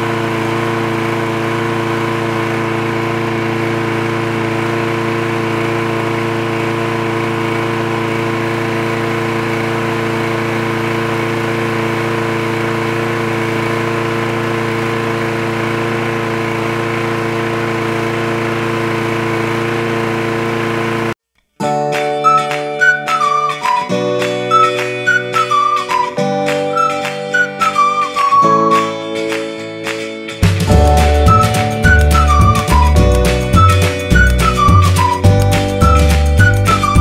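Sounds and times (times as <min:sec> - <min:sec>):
lawn mower engine running: 0:00.0 - 0:21.2, 0:22.1 - 0:37.0.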